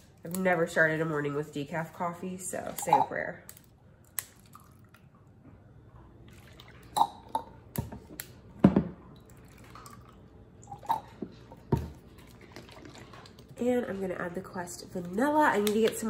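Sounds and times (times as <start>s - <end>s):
coffee pouring over ice: 12.0s - 13.6s.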